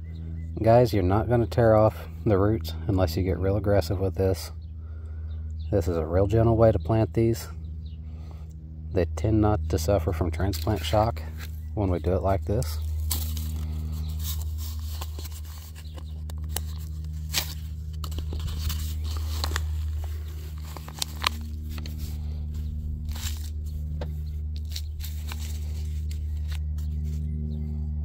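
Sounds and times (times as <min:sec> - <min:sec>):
steady low hum: 0:00.0 - 0:28.0
plant pot crackling in soil: 0:10.4 - 0:27.7.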